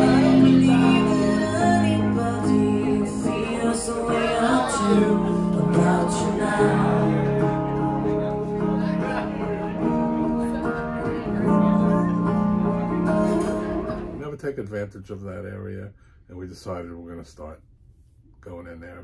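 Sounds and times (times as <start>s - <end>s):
young man singing: 0.0s - 11.4s
acoustic guitar: 0.0s - 16.2s.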